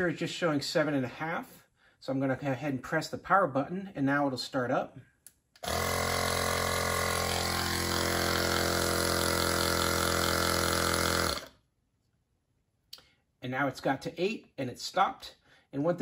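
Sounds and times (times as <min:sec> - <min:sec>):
tire inflator compressor running: 0:05.6 - 0:11.6.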